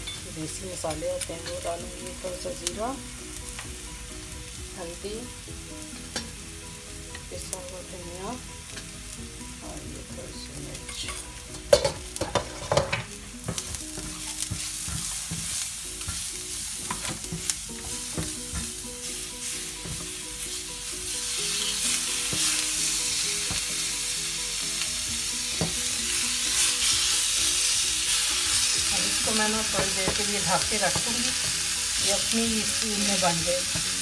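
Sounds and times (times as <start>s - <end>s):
food sizzling in a pan: 0.0s - 34.0s
wooden spatula scraping a pan: 11.7s - 20.6s, 25.6s - 34.0s.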